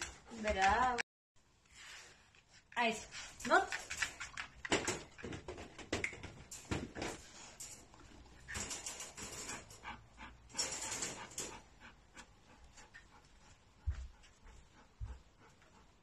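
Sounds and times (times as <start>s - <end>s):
dog panting: 0.0s - 1.0s, 9.2s - 16.0s.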